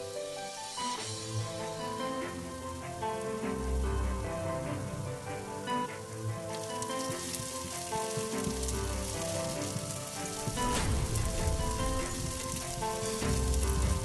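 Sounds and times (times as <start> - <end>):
background music: 0.0 - 14.0
onion sizzling in a pan: 0.0 - 14.0
wooden spatula stirring: 6.5 - 14.0.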